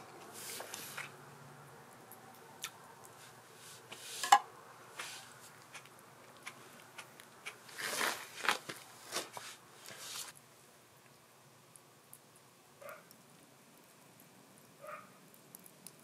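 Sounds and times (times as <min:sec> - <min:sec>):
soft rustle: 0:00.2 - 0:01.2, 0:03.0 - 0:05.7, 0:07.6 - 0:10.4.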